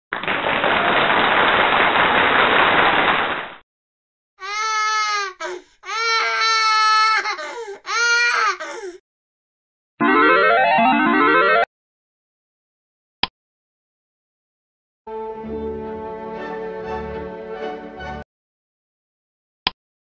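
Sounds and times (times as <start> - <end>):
high wavering crying wail: 4.4 - 9.0.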